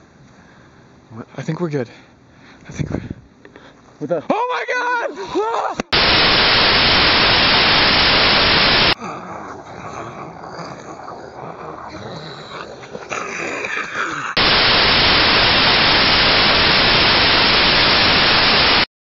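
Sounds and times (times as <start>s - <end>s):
loud static hiss: 5.8s - 9.0s, 14.4s - 18.9s.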